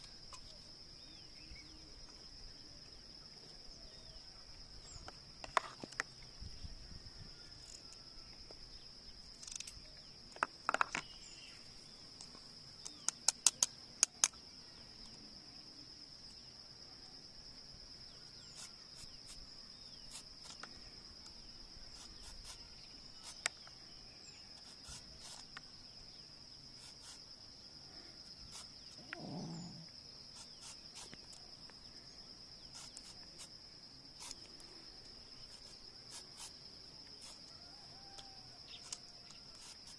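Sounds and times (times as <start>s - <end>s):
insects chirring: 0.0s - 39.9s
sharp clicks: 12.2s - 14.4s.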